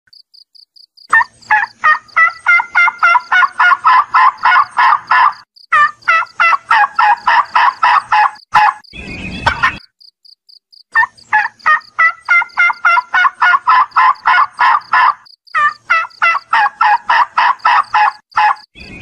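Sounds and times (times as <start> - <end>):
turkey yelping: 1.1 - 9.8, 10.9 - 18.7
faint high chirping: 17.8 - 19.0.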